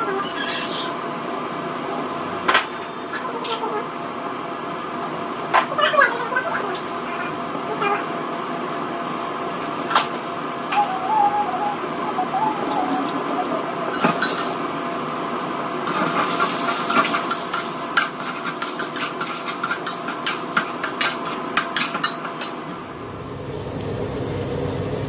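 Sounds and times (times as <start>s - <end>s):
frying hiss: 12.1s - 25.0s
metal spatula scraping wok: 13.9s - 14.6s, 15.9s - 22.5s.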